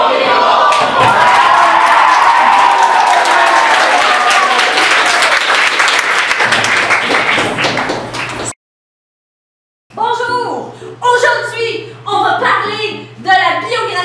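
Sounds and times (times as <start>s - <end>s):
students cheering and shouting: 0.0s - 5.4s
crowd applause: 0.6s - 8.6s.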